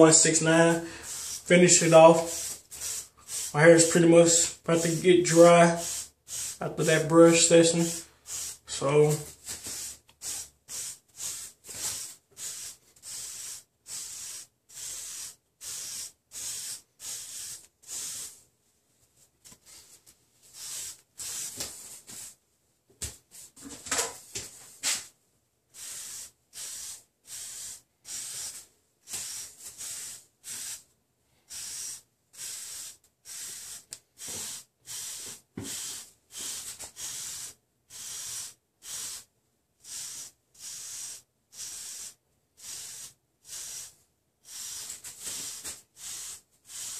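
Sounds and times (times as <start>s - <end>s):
hairbrush swishing through hair: 0.1s - 18.4s.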